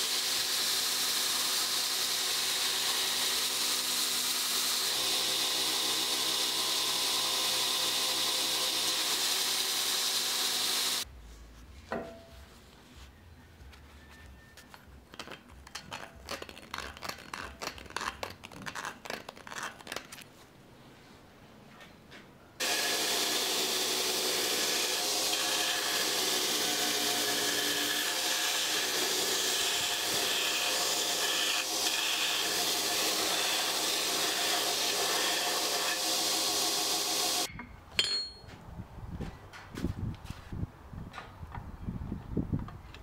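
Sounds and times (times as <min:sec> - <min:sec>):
belt grinder running: 0:00.0 - 0:11.0, 0:22.6 - 0:37.5.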